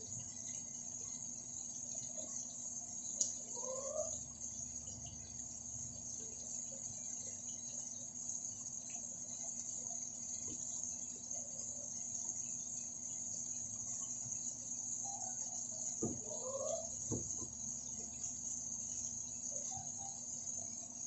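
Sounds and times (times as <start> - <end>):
high-pitched hiss: 14.0 - 21.0.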